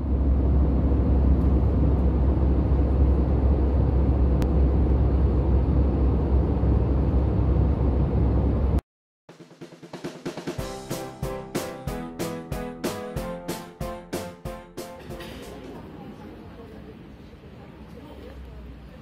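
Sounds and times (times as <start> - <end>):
jet airliner cabin noise: 0.0 - 8.8.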